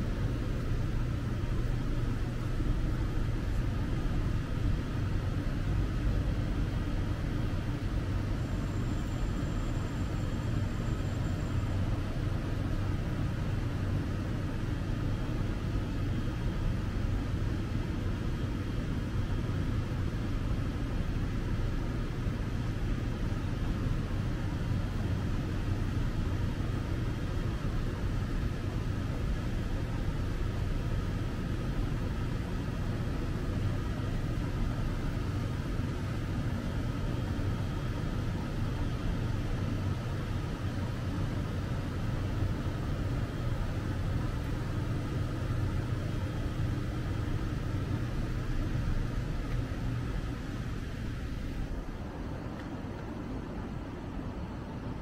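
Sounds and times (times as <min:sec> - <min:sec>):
road traffic rumble: 0:00.0 - 0:55.0.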